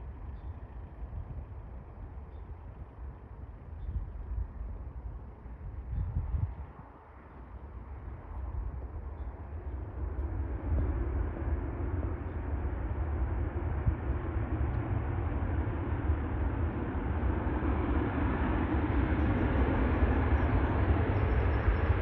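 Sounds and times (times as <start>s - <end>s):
jet engines roaring: 7.6s - 22.0s.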